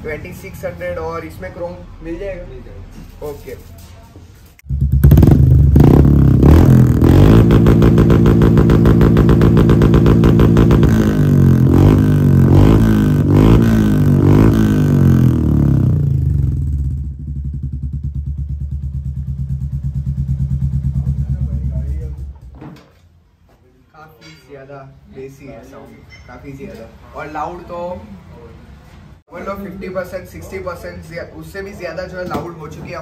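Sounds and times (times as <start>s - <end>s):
motorcycle engine revving: 4.6s - 22.5s.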